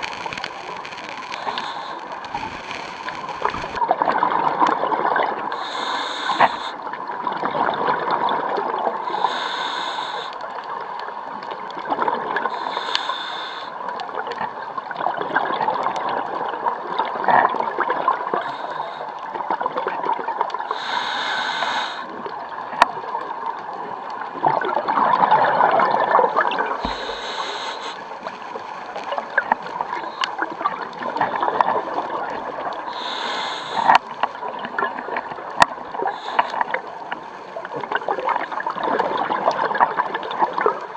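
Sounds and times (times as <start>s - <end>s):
regulator hissing on inhalation: 0.0s - 3.8s, 5.5s - 6.8s, 9.0s - 10.4s, 12.5s - 13.8s, 18.4s - 19.1s, 20.7s - 22.1s, 26.6s - 28.1s, 32.9s - 34.0s, 36.1s - 36.8s
exhaled air bubbling underwater: 0.0s - 40.9s.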